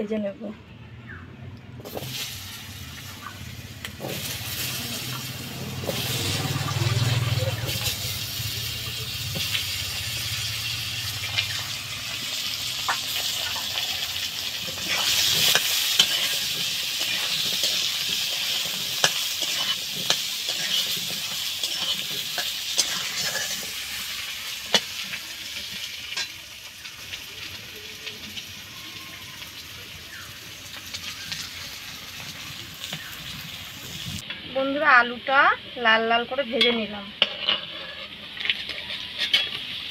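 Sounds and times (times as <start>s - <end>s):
potatoes sizzling in hot oil: 1.8s - 39.9s
metal spatula scraping and tapping pan: 14.7s - 24.0s, 36.5s - 39.8s.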